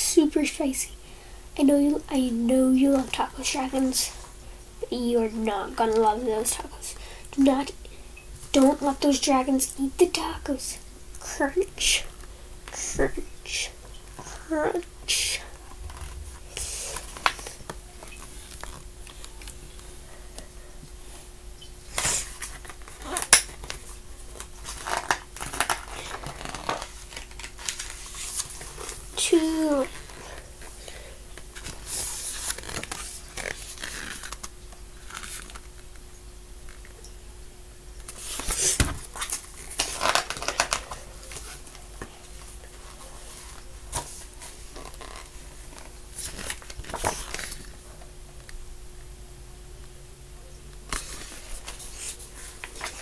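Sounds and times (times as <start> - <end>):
book pages rustling: 22.0 - 30.8, 31.4 - 35.8, 38.1 - 47.7, 50.9 - 53.0.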